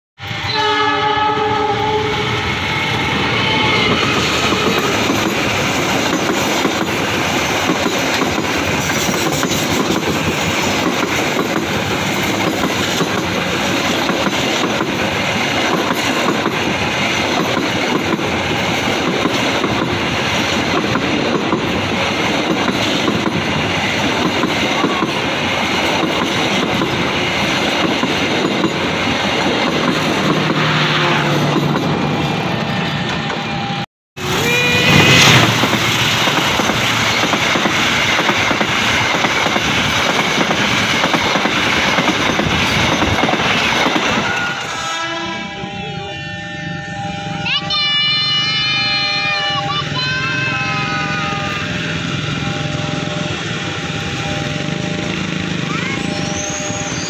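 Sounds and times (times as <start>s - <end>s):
train horn: 0.2s - 5.1s, 30.4s - 31.5s, 32.1s - 35.7s, 44.0s - 57.0s
train wheels rumbling on rails: 0.2s - 45.8s, 49.5s - 57.0s.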